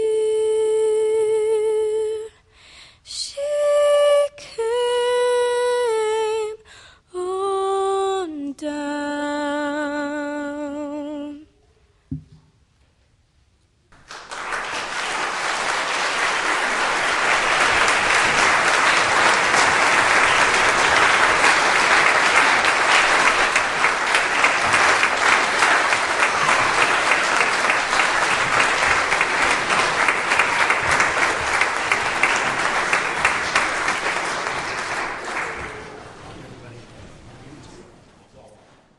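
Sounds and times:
audience applauding: 14.0 - 36.5.

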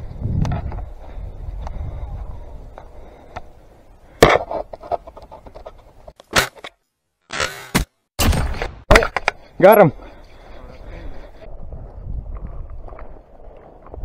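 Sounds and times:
low rumble of wind: 0.0 - 6.1, 10.0 - 14.0.

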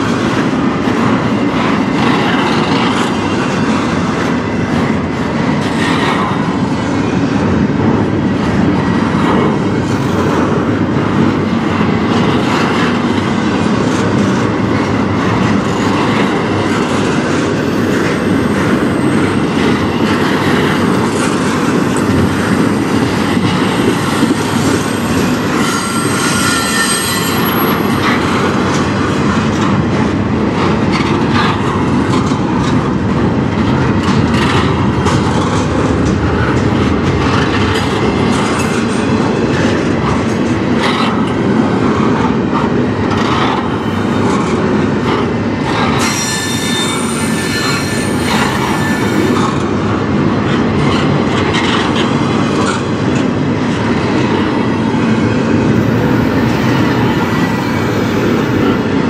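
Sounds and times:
train wheels rumbling on rail: 0.0 - 59.0
high wheel squeal: 25.5 - 28.0, 46.0 - 49.4.

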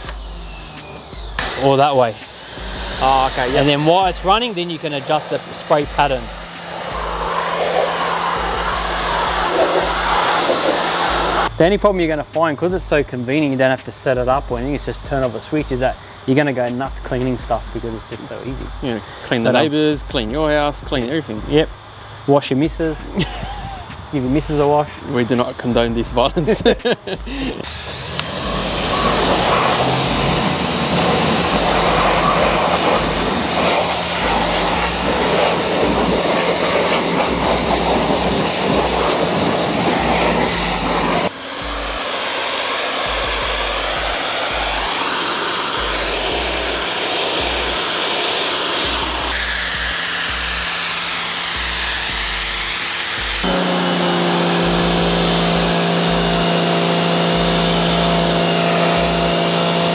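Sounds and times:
pressure washer jet hissing: 0.0 - 11.6, 14.8 - 59.9
pump motor hum: 0.0 - 12.0, 25.8 - 59.9.

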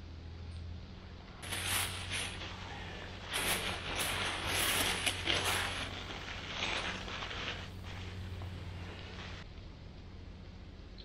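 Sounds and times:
plastic bag rustling: 1.3 - 9.4.

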